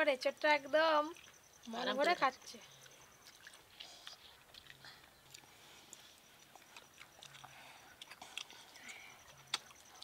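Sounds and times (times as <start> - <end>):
high pulsing chirp: 0.2 - 3.6
eating clicks and smacks: 2.7 - 10.0.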